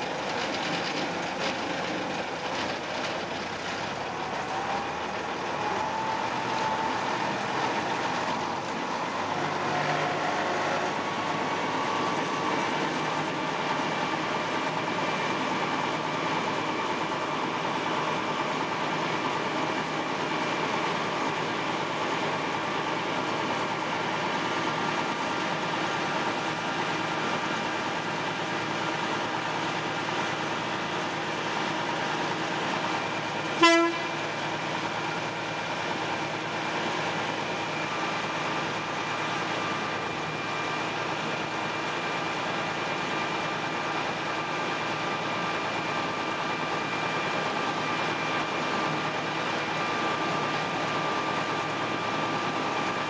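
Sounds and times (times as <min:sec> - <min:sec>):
diesel locomotive engine running: 0:00.0 - 0:53.0
locomotive horn toot: 0:33.6 - 0:34.3.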